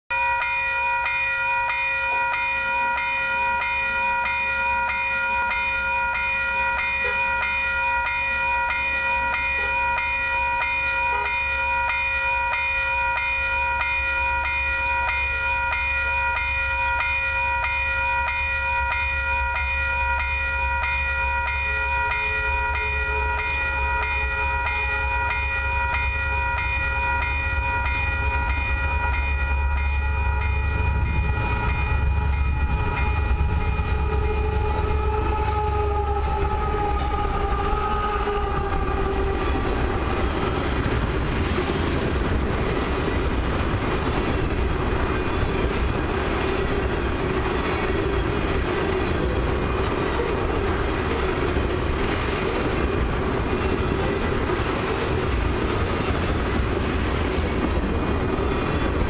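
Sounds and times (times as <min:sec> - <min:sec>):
level crossing bell ringing: 0:00.1 - 0:34.7.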